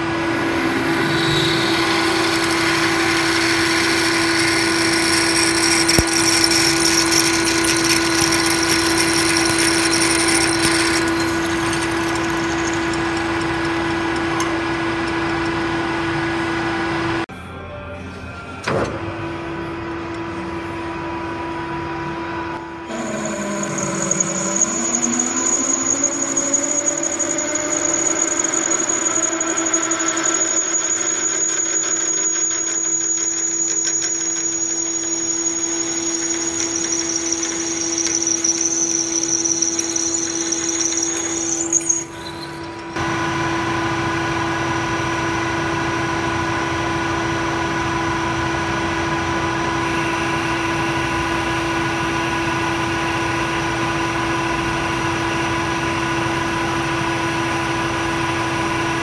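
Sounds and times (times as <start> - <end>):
drill squealing in metal: 0.0 - 16.5, 22.7 - 43.0
lathe boring bar cutting: 0.0 - 17.2, 22.1 - 45.4
lathe humming: 0.0 - 17.2, 19.5 - 46.4.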